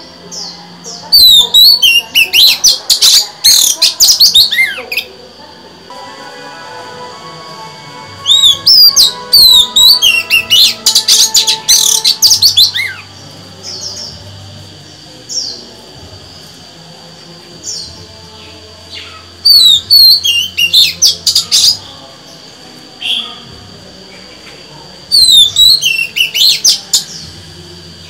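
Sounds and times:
bird singing whistles and trills: 0.4 - 5.0, 8.2 - 13.1, 19.0 - 21.9, 25.1 - 27.3.

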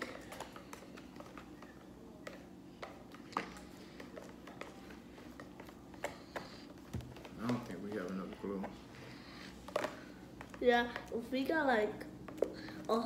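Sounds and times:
low steady hum: 0.0 - 13.0
spoons stirring slime: 0.0 - 13.0.

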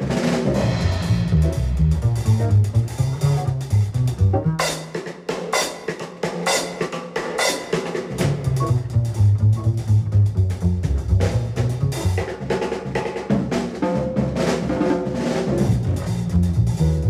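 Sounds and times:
drum kit: 0.0 - 17.0
bass line: 0.4 - 4.8, 8.2 - 12.4, 15.6 - 17.0.

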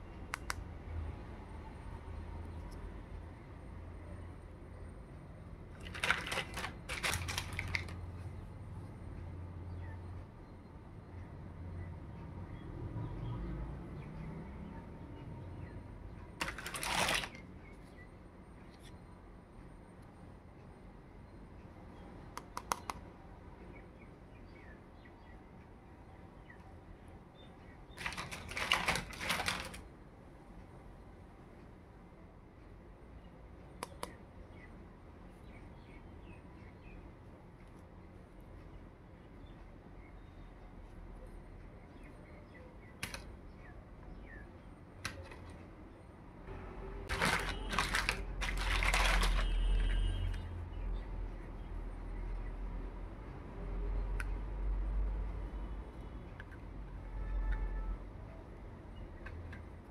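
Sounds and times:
plastic toy clattering: 5.8 - 8.0, 16.4 - 17.4, 28.0 - 29.8, 47.1 - 50.3
light plastic clicks: 22.4 - 23.0.

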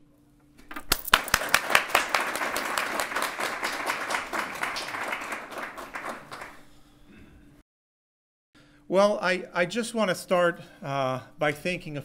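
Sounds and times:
audience applauding: 0.9 - 6.7.

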